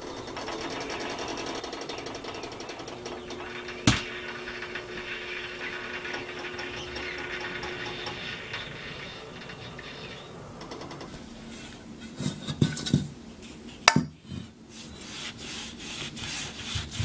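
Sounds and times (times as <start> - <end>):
fast mechanical rattling: 0.0 - 11.3
steady low hum: 0.0 - 17.0.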